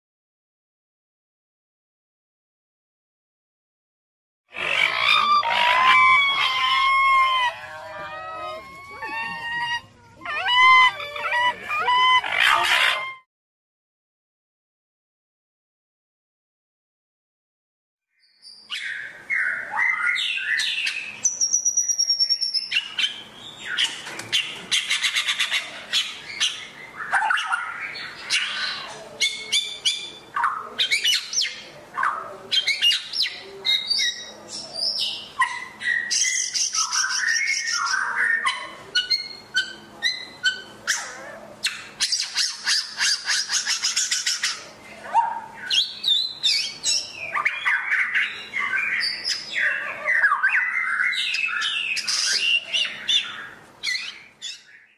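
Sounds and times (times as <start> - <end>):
bird singing whistles and trills: 18.2 - 23.9, 35.9 - 38.4, 45.6 - 54.9.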